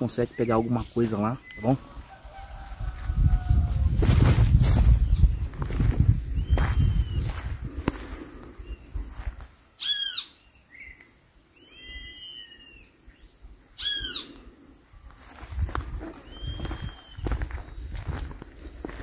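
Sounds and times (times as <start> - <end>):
bird calling: 9.8 - 15.1, 16.0 - 17.9.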